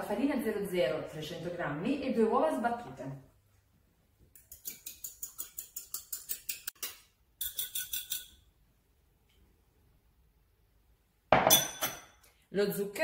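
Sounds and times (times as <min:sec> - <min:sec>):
fork clinking on glass bowl: 0:04.4 - 0:08.4, 0:11.4 - 0:12.2.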